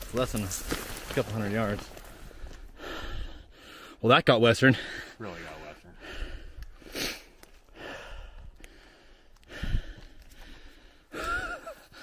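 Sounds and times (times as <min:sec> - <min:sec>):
footsteps through dry brush: 0:00.0 - 0:03.3
man breathing hard: 0:02.2 - 0:04.0, 0:05.9 - 0:12.0.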